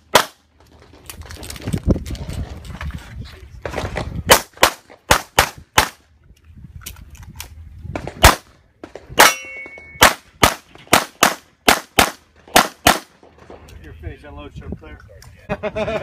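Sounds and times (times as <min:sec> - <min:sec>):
short metallic ring: 0:09.2 - 0:10.0
pistol shots: 0:09.2 - 0:13.1.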